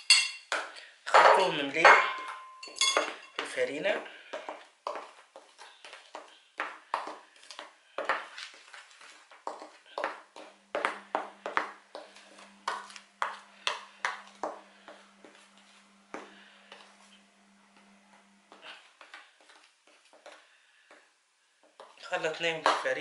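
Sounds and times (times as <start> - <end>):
faint low hum: 10.4 - 19.5.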